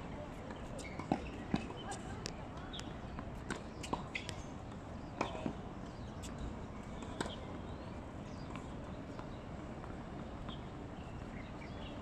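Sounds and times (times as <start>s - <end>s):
outdoor background noise: 0.0s - 12.0s
tennis ball bouncing on court: 0.8s - 4.4s, 5.2s - 5.6s, 7.0s - 7.4s.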